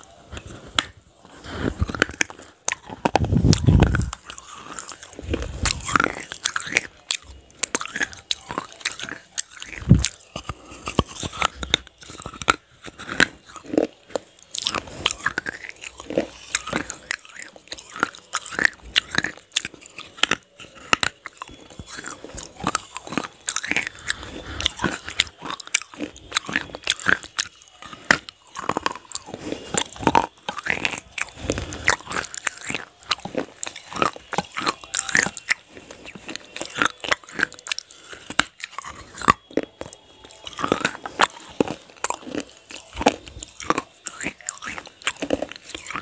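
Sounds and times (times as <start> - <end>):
crunchy biting and chewing: 0.0 - 46.0.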